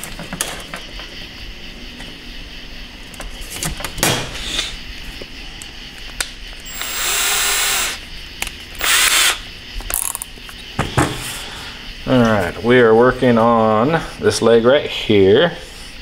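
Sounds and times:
power drill drilling metal: 6.7s - 8.0s, 8.8s - 9.4s.

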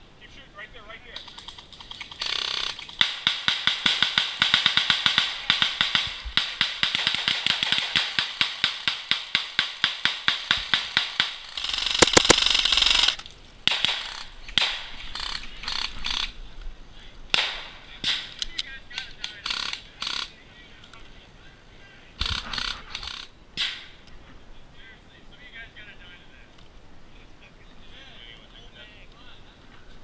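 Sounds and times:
airsoft rifle rapid firing: 2.2s - 14.8s.

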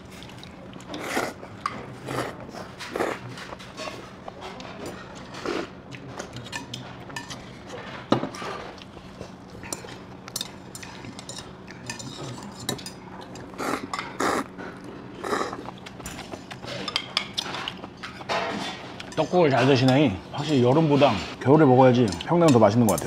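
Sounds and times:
utensils clinking on metal bowls: 0.8s - 14.8s, 16.0s - 23.0s
slurping noodles: 15.2s - 15.6s.

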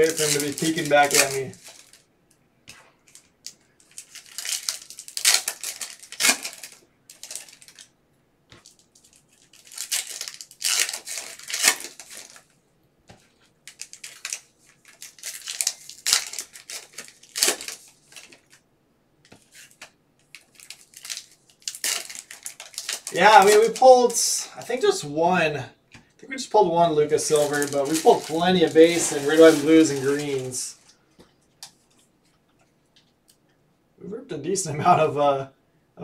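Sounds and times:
plastic wrappers tearing and crinkling: 0.0s - 2.1s, 3.0s - 7.9s, 8.5s - 12.5s, 13.3s - 18.6s, 19.4s - 24.3s, 27.0s - 31.0s.

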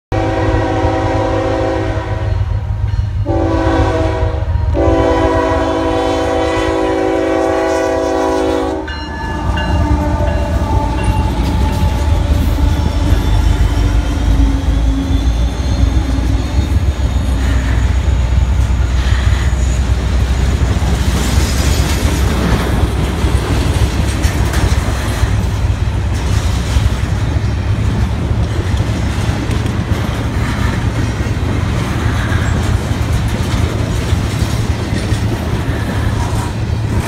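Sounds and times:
train horn blasts: 0.1s - 14.9s
train rumbling: 0.1s - 37.0s
wheels clattering on rails: 8.9s - 37.0s.

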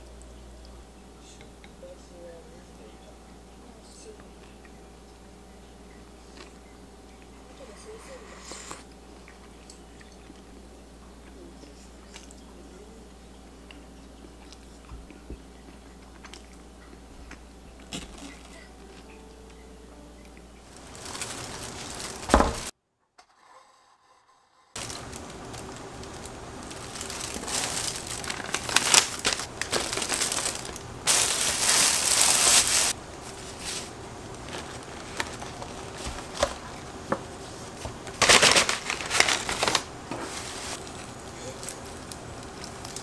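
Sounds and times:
bags rustling and crinkling: 17.9s - 18.7s, 20.6s - 22.7s, 24.8s - 43.0s.

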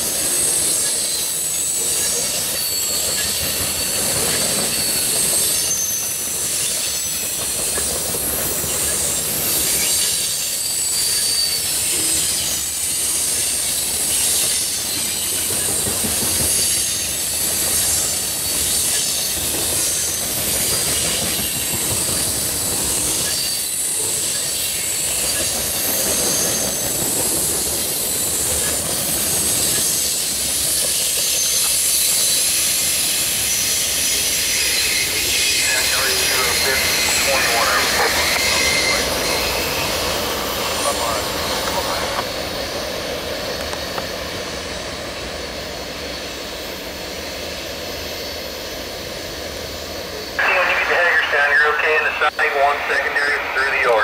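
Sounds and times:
train wheels rolling on rail: 0.0s - 54.0s
high-pitched wheel squeal: 36.4s - 40.8s.

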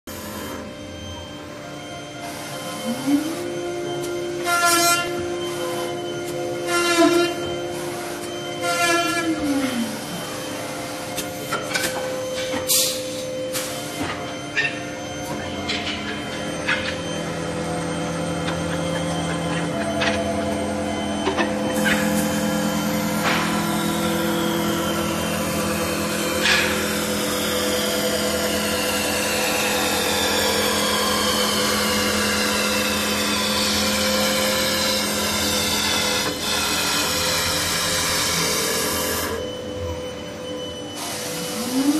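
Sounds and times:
lathe motor whine: 0.1s - 41.9s
cutter cutting wood: 21.6s - 39.4s.

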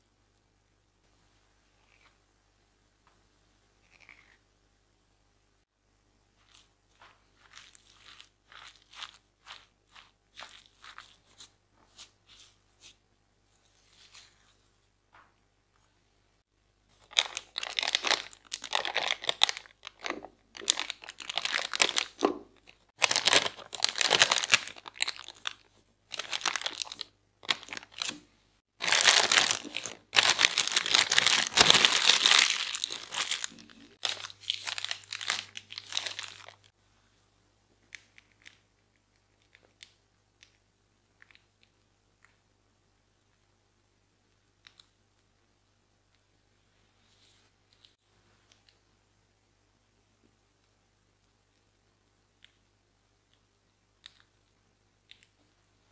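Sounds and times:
plastic piping bag crinkling: 6.4s - 12.1s, 16.9s - 36.7s.

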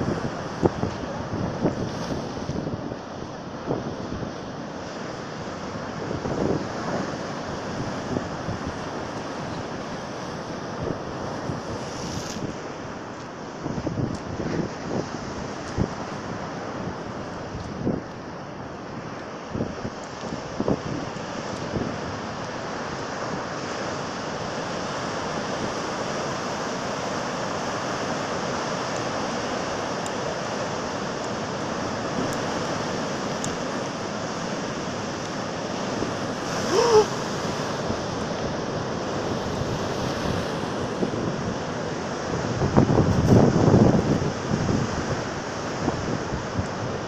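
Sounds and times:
heavy surf breaking: 25.0s - 47.0s.

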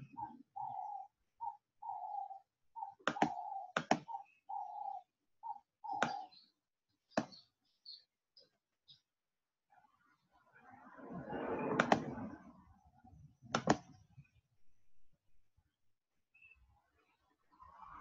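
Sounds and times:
computer mouse clicks: 3.0s - 4.2s, 5.9s - 6.2s, 11.7s - 12.2s, 13.5s - 13.9s.

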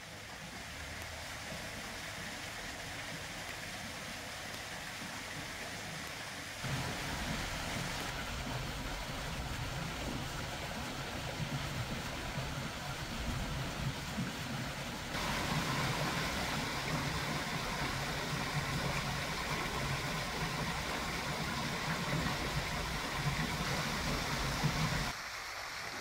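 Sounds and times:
waterfall rushing: 6.6s - 26.0s.

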